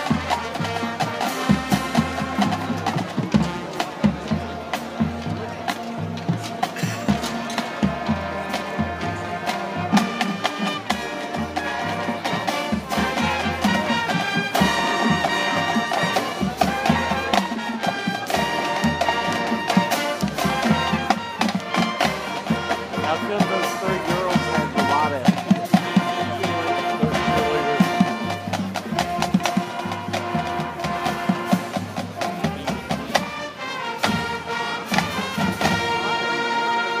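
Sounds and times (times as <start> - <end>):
marching band playing: 0.0 - 37.0.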